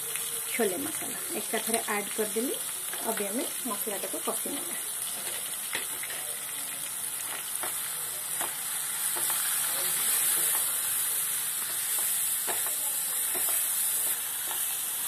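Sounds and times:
paste sizzling in hot oil: 0.0s - 15.0s
spatula scraping and tapping pan: 8.4s - 9.5s, 11.6s - 14.7s.

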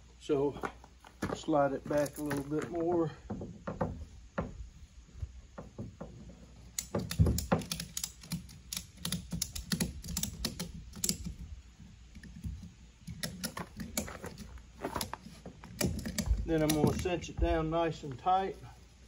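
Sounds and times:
light clicks and knocks of straps: 0.5s - 4.6s, 5.2s - 18.9s.

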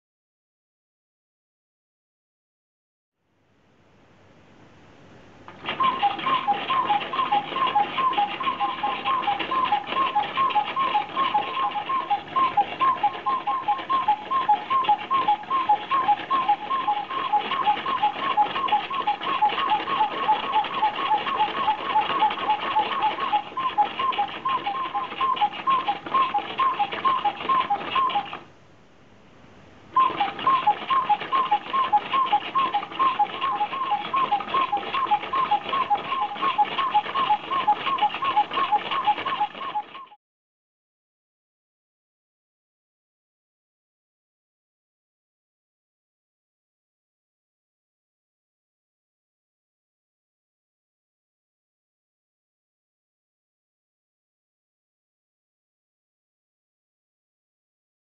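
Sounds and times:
chirping squeaks: 5.7s - 28.4s, 30.0s - 40.2s.

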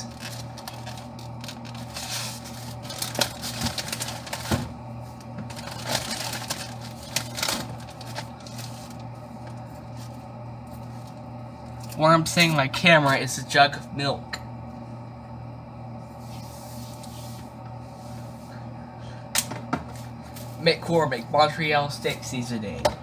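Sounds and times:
steady low hum: 0.0s - 23.0s
plastic items clicking and scraping: 0.1s - 4.5s, 5.5s - 8.8s.

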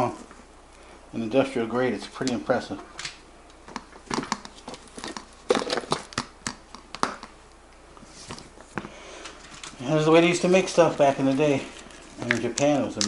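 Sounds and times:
leather case clicks and rustles: 3.7s - 7.4s.

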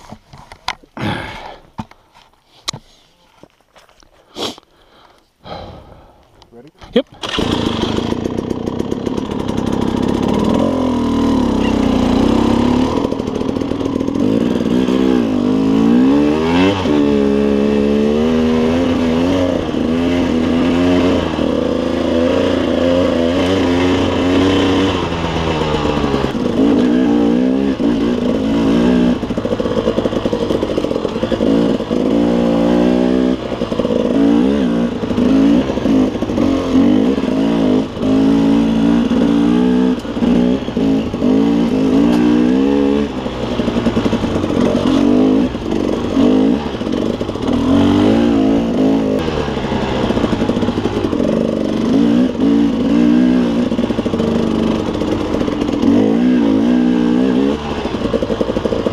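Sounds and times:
dirt bike engine revving: 7.1s - 58.9s.

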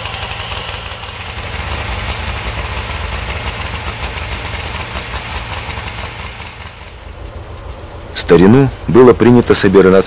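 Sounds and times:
snowmobile engine idling: 0.0s - 7.8s.

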